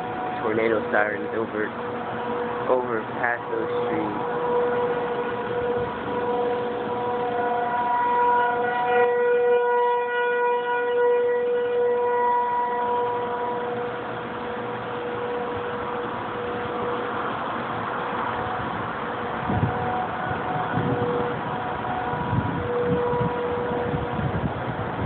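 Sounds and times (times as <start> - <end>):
warning sirens wailing: 0.0 - 25.0.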